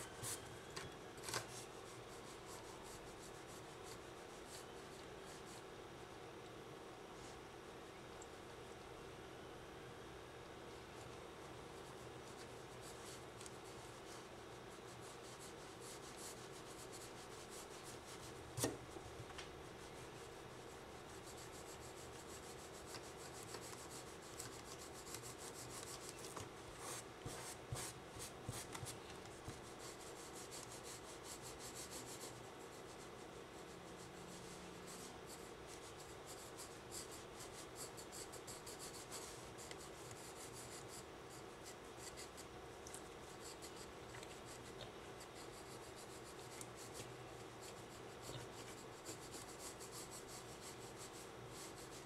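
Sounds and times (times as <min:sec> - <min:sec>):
background hum: 0:00.0 - 0:52.0
pencil scratching on paper: 0:11.9 - 0:18.8, 0:19.9 - 0:33.7, 0:34.9 - 0:42.5, 0:43.2 - 0:52.0.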